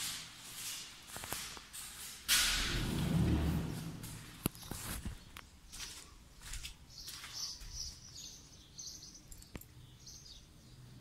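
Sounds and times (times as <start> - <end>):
footsteps on tiled floor: 0.0 - 8.3.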